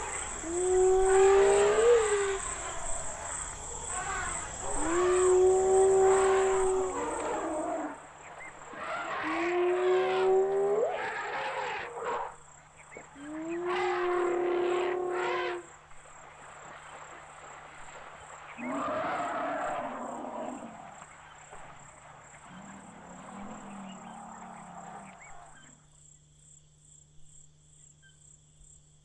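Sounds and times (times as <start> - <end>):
wild animals calling: 0.0 - 15.7, 18.4 - 21.0, 22.0 - 25.8
hoarse animal call: 0.3 - 8.0, 8.7 - 12.4, 18.6 - 21.0.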